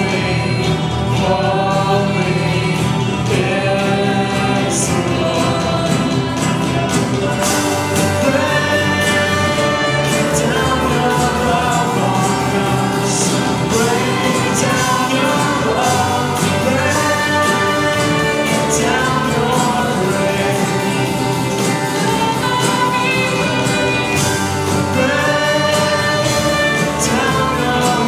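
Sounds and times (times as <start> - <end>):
backing instruments: 0.0 - 28.0
group singing worship song: 0.0 - 28.0.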